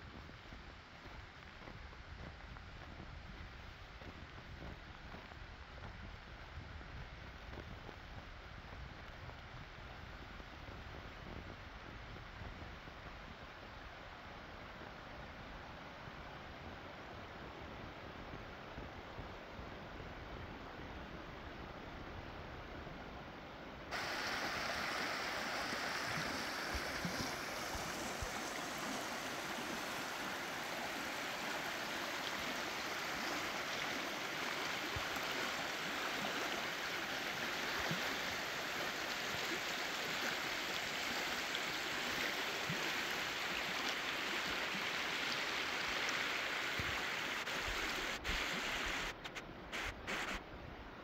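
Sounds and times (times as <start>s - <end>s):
stream rushing over rocks: 23.9s - 50.4s.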